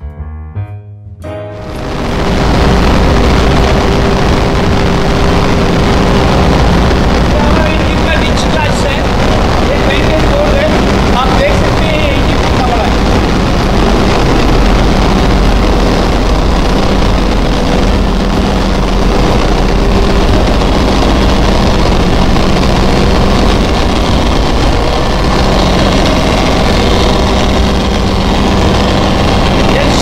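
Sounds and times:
diesel engine room noise: 0:01.6 - 0:30.0.

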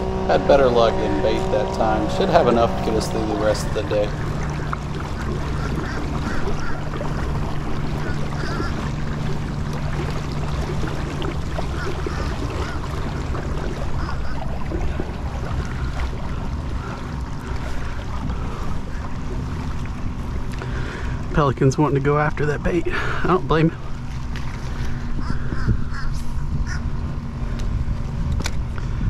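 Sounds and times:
steady low hum: 0:00.0 - 0:29.0
water sloshing around kayak: 0:00.0 - 0:29.0
wind on microphone: 0:24.4 - 0:29.0.

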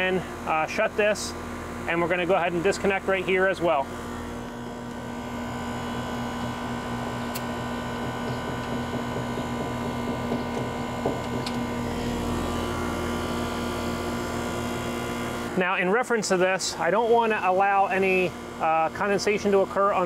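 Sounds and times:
air conditioner unit humming: 0:00.0 - 0:20.0.

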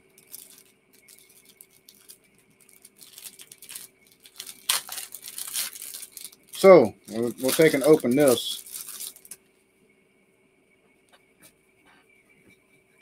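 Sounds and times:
packaging rustling and crinkling: 0:00.0 - 0:09.4.

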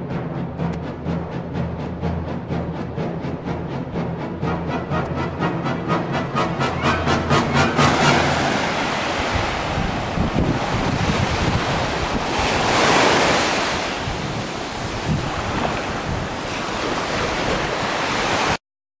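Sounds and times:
wave breaking: 0:00.0 - 0:18.6
surf washing on a beach: 0:06.8 - 0:18.6
wind buffeting the microphone: 0:07.6 - 0:18.6.

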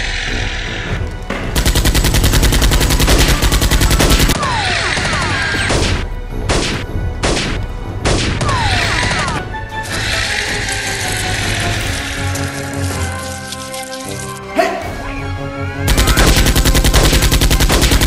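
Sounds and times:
automatic gunfire burst: 0:01.6 - 0:04.4, 0:15.9 - 0:18.0.

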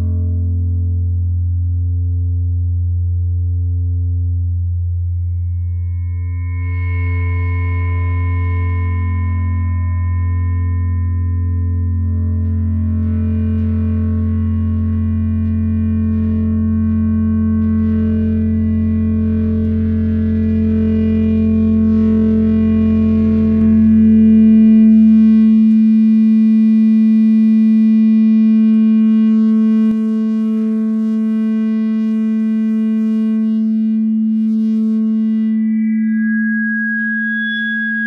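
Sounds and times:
deep bass tone: 0:00.0 - 0:36.3
synthesizer drone: 0:12.4 - 0:38.0.

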